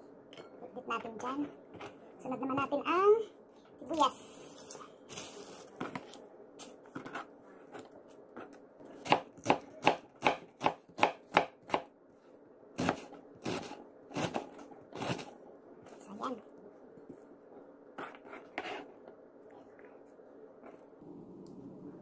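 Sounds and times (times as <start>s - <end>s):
knife chopping on cutting board: 9.0s - 11.9s, 12.8s - 15.3s.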